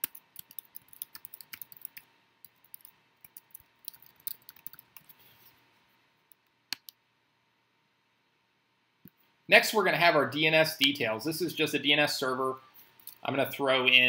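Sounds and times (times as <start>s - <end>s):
keyboard typing: 0.0s - 5.2s.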